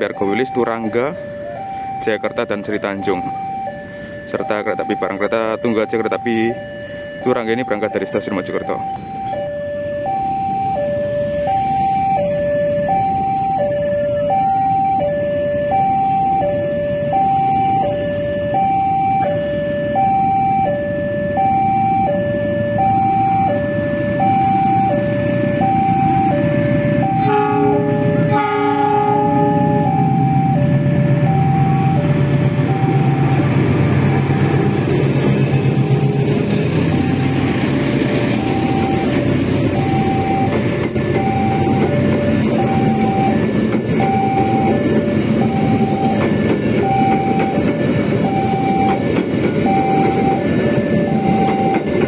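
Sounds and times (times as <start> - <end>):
locomotive engine rumble: 0.0 - 52.0
locomotive horn: 26.5 - 31.8, 32.9 - 37.6.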